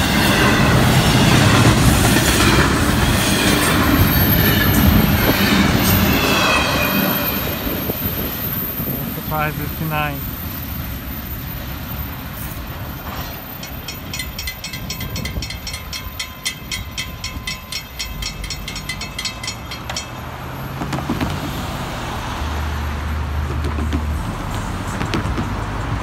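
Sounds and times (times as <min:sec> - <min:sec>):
level crossing bell ringing: 0:13.6 - 0:20.3
cars driving past: 0:19.5 - 0:26.0.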